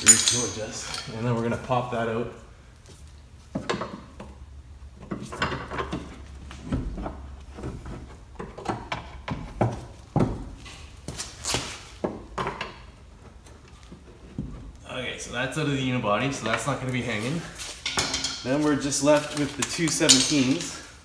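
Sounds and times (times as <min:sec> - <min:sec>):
tools and bolt knocking on metal: 0:17.8 - 0:18.5.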